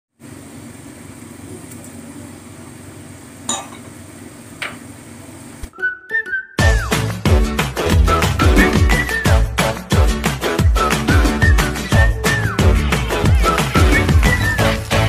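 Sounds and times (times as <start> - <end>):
dance music: 6.6 - 15.0.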